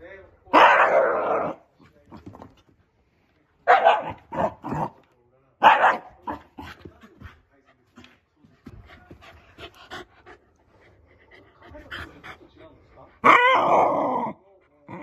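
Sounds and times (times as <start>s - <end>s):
dog barking: 0.5s - 1.6s, 3.6s - 4.6s, 5.6s - 6.5s.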